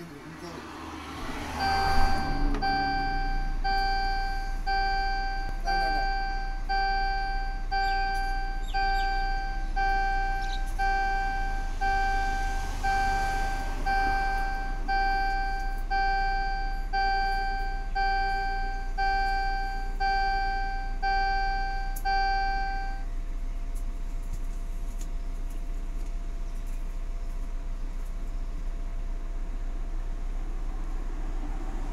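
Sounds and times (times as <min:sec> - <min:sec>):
warning buzzer beeping: 0:01.5 - 0:23.0.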